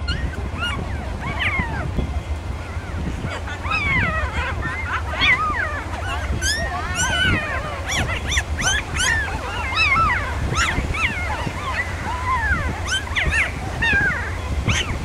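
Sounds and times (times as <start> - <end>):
puppies whimpering and squealing: 0.0 - 15.0
steady low rumble: 0.0 - 15.0.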